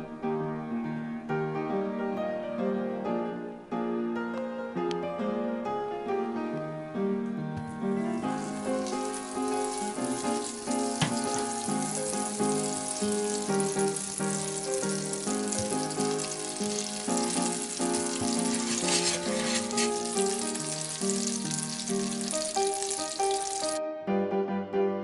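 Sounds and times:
background music: 0:00.0 - 0:25.0
butter sizzling in frying pan: 0:08.2 - 0:23.8
wooden spoon in pan: 0:17.1 - 0:23.7.

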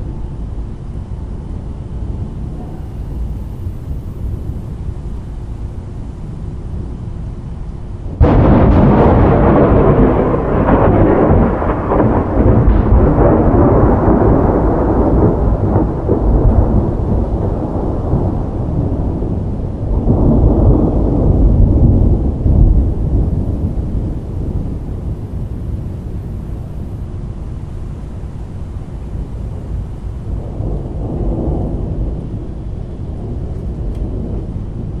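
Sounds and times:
thunder crack and rumble: 0:00.0 - 0:05.6, 0:06.5 - 0:35.0.

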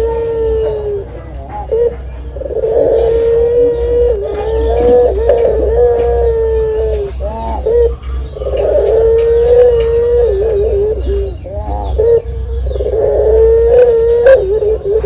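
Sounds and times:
dove cooing: 0:00.0 - 0:15.0.

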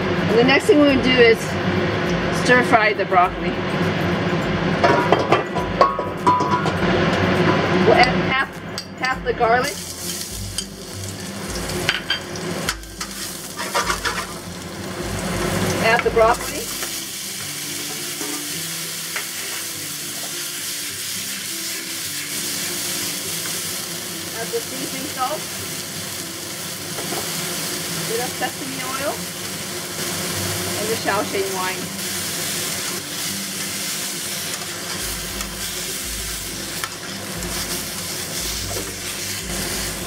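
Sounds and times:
broccoli sizzling in a wok: 0:09.5 - 0:40.0
metal tongs stirring: 0:09.8 - 0:14.6.

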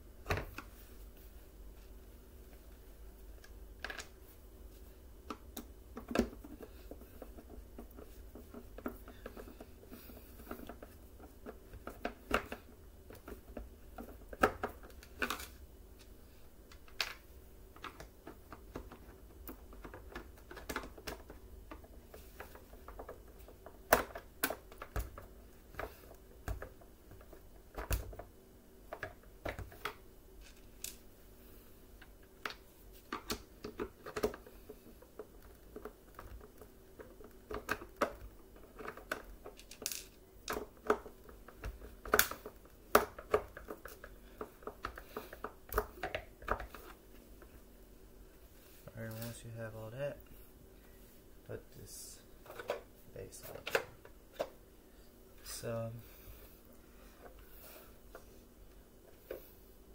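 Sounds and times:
plastic parts clicking and knocking: 0:03.4 - 0:04.2, 0:05.2 - 0:16.1, 0:16.7 - 0:31.0, 0:32.0 - 0:47.6, 0:52.4 - 0:54.6.

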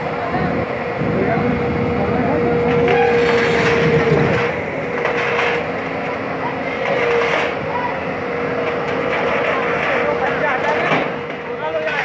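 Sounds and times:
steady machine whine: 0:00.0 - 0:08.8
excavator diesel engine under load: 0:00.0 - 0:12.0.

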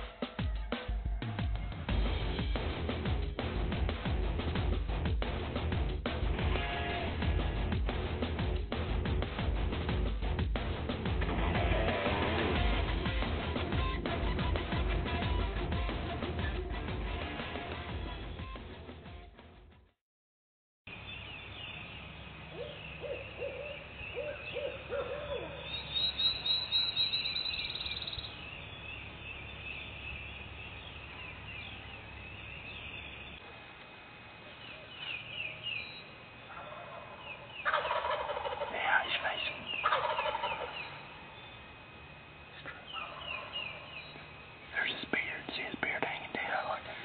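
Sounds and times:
songbirds chirping: 0:20.9 - 0:47.0
turkeys gobbling: 0:36.5 - 0:41.1, 0:42.9 - 0:44.0.

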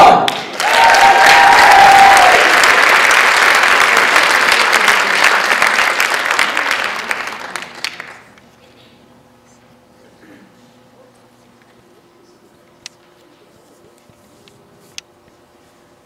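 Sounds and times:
audience applauding: 0:00.3 - 0:08.3
person whooping: 0:00.6 - 0:02.4.

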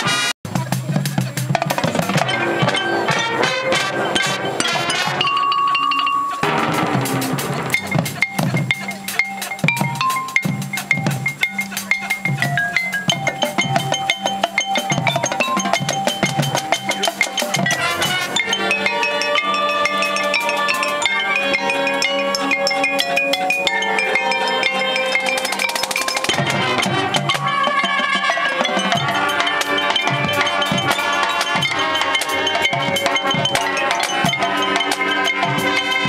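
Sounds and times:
drums: 0:00.0 - 0:36.0
marimba notes: 0:00.0 - 0:36.0.

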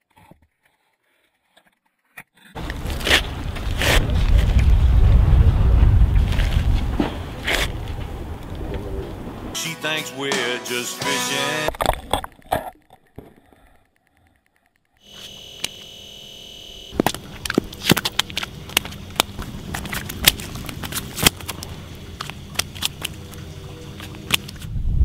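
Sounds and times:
low outdoor background: 0:01.4 - 0:09.6, 0:11.8 - 0:25.0
fish slapping on ice: 0:17.0 - 0:24.7.

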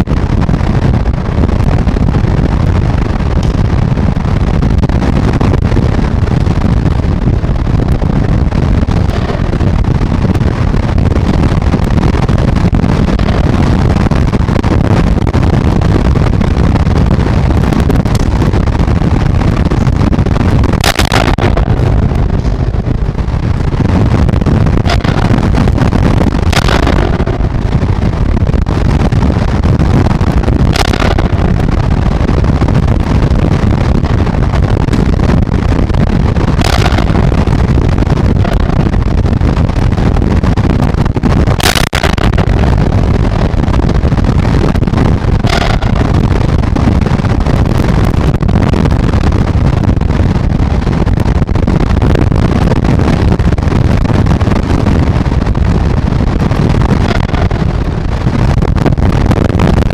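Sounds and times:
driving rain: 0:00.0 - 0:59.9
storm wind buffeting microphone: 0:00.0 - 0:59.9.

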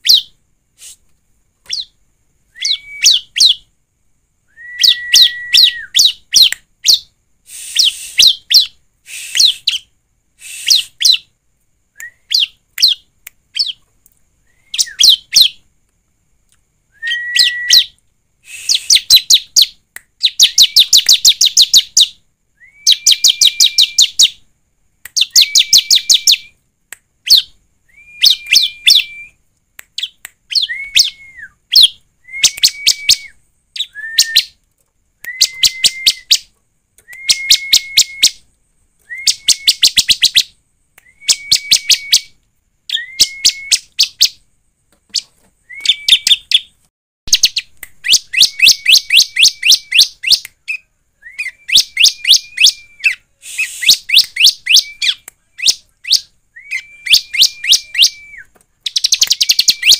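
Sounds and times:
bird singing chipping notes: 0:45.1 - 0:59.9.

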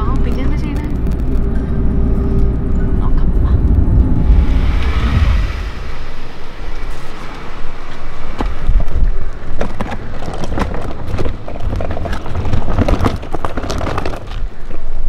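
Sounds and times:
wind rumble on microphone: 0:00.0 - 0:15.0
suitcase wheels rolling on concrete: 0:06.7 - 0:15.0.

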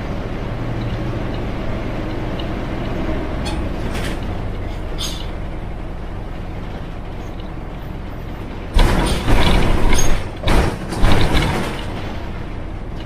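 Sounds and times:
bus engine droning: 0:00.0 - 0:13.0
loud rattling: 0:08.7 - 0:12.5.

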